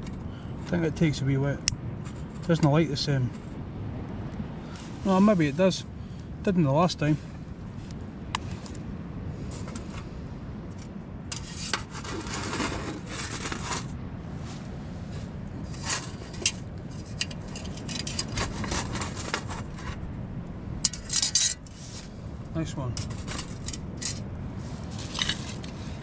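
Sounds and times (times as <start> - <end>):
ferro rod scraping: 10.8 - 20.1, 20.8 - 22.2, 22.9 - 26.0.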